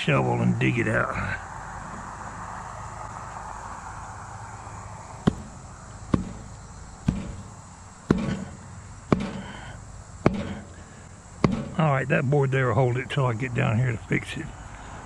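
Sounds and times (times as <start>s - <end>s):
sharp knocks on wooden board: 5.2s - 7.5s, 8.1s - 9.6s, 10.2s - 10.8s, 11.4s - 11.8s.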